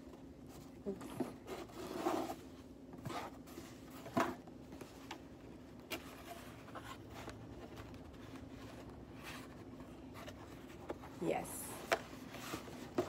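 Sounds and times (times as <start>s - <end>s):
cardboard box rustling and scraping: 0.5s - 13.0s.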